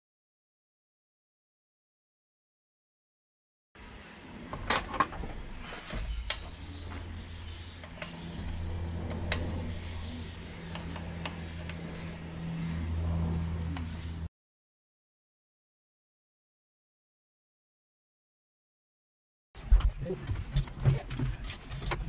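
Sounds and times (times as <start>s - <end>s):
low steady hum: 3.8s - 14.3s.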